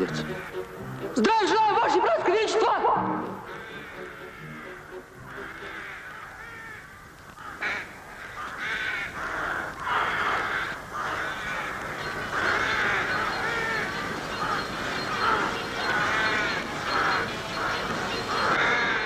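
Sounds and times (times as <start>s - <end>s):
crows cawing: 0.0s - 1.2s, 3.3s - 19.0s.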